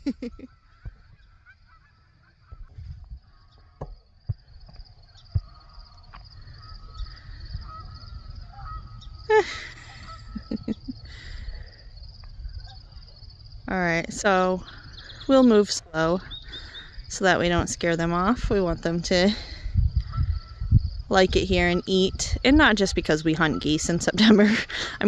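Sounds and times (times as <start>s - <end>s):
wind rumble on microphone: 0.0s - 25.0s
geese honking: 0.5s - 3.8s, 5.4s - 11.4s.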